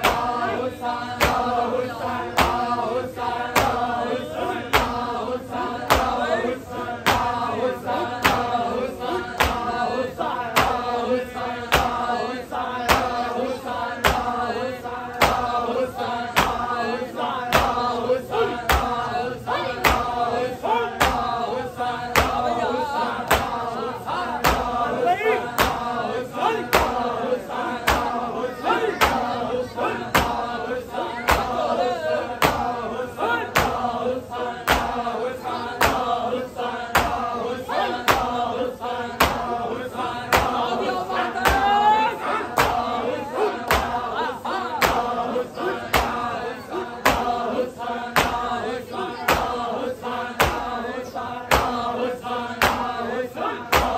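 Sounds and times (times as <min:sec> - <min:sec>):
men chanting in unison: 0:00.0 - 0:53.9
chest beating slaps: 0:01.2 - 0:01.6, 0:02.3 - 0:02.8, 0:03.5 - 0:04.0, 0:04.6 - 0:05.2, 0:05.8 - 0:06.3, 0:07.0 - 0:07.5, 0:08.2 - 0:08.6, 0:09.3 - 0:09.8, 0:10.5 - 0:11.0, 0:11.6 - 0:12.2, 0:12.8 - 0:13.2, 0:15.1 - 0:15.6, 0:16.3 - 0:16.8, 0:18.6 - 0:19.1, 0:19.8 - 0:20.3, 0:20.9 - 0:21.4, 0:22.1 - 0:22.6, 0:23.2 - 0:23.8, 0:24.4 - 0:26.0, 0:26.6 - 0:27.1, 0:27.8 - 0:29.4, 0:30.1 - 0:32.8, 0:33.5 - 0:34.0, 0:34.6 - 0:35.1, 0:35.8 - 0:36.2, 0:36.9 - 0:37.4, 0:38.0 - 0:39.6, 0:40.3 - 0:40.7, 0:41.4 - 0:41.8, 0:42.5 - 0:43.0, 0:43.6 - 0:44.0, 0:44.8 - 0:45.2, 0:45.8 - 0:46.3, 0:47.0 - 0:47.4, 0:48.1 - 0:48.6, 0:49.2 - 0:49.6, 0:50.4 - 0:50.8, 0:51.5 - 0:51.9, 0:52.6 - 0:53.0, 0:53.7 - 0:53.9.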